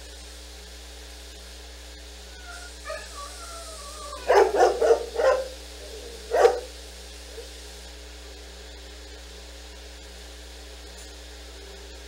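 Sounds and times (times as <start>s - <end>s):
dog whining: 2.3s - 6.7s, 7.3s - 7.5s
dog barking: 2.4s - 7.6s.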